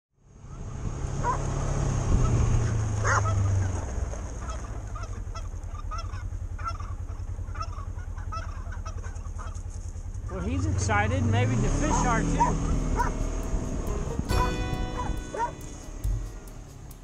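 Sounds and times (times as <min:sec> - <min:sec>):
vehicle engine running: 0:00.2 - 0:17.0
fowl calling: 0:04.4 - 0:10.0, 0:11.8 - 0:16.3.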